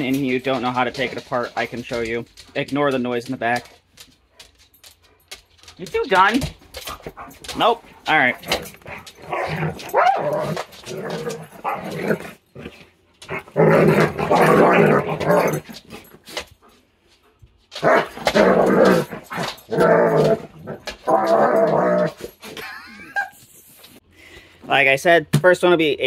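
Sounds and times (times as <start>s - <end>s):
dogs growling: 6.7s - 16.4s, 17.8s - 22.8s.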